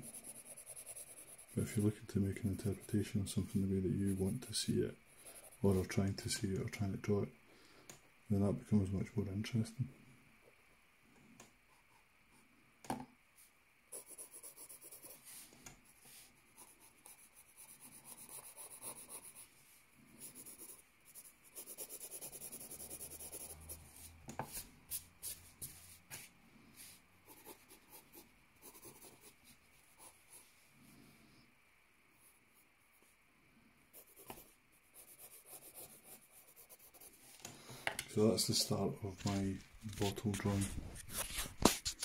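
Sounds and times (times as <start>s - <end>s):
pencil scratching on paper: 0.0s - 5.9s, 13.9s - 19.5s, 20.1s - 30.5s, 33.9s - 37.3s.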